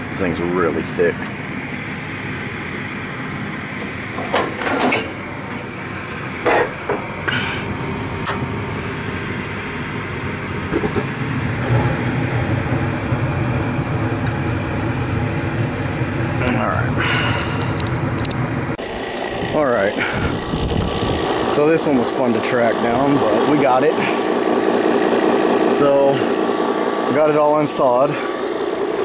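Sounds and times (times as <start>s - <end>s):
furnace humming: 0.0s - 29.0s.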